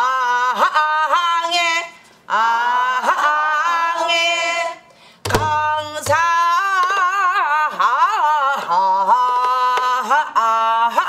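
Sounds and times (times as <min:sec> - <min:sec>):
drum stroke: 0:05.3 - 0:06.3.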